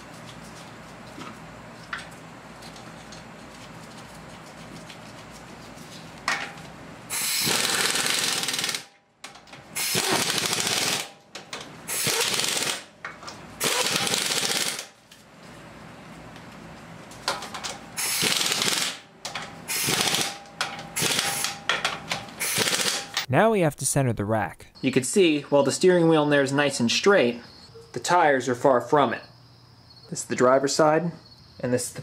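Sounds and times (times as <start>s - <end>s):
air impact wrench hammering: 7.1s - 8.9s, 9.8s - 11.2s, 11.9s - 12.9s, 13.6s - 14.9s, 18.0s - 19.0s, 19.7s - 23.2s.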